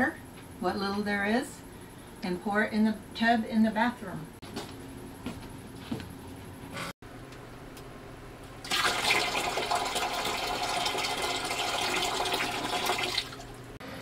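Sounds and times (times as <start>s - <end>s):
water pouring into a tub: 8.7s - 13.6s.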